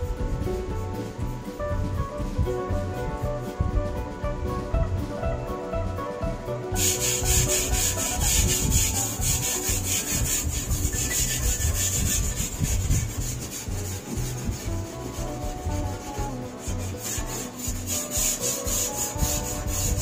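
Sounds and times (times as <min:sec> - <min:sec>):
brush scrubbing sheet metal: 0:06.8 - 0:20.0.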